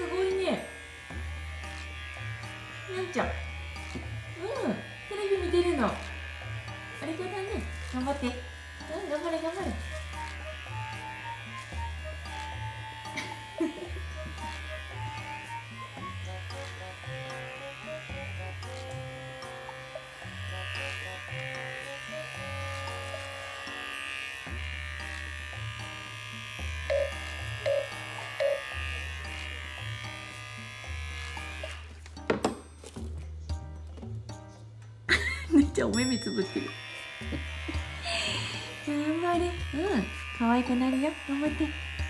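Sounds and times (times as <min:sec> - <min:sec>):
electric hair clippers buzzing: 0:00.0 - 0:32.5, 0:35.1 - 0:42.0
background music with plucked bass: 0:24.5 - 0:36.6.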